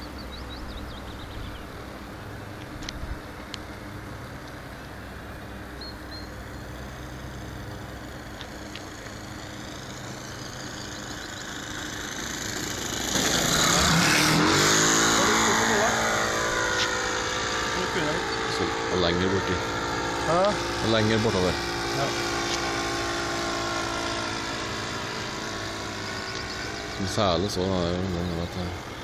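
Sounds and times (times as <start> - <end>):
model airplane engine whine: 0.0 - 29.0.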